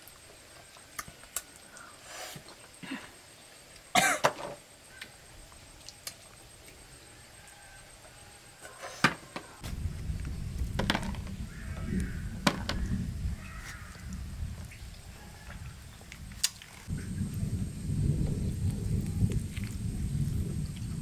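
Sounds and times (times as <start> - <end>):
low rumble: 9.6 - 16.3, 16.9 - 21.0.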